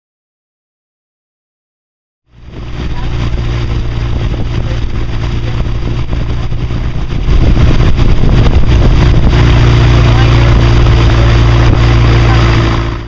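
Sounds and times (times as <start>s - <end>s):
motorboat engine running: 2.3s - 13.0s.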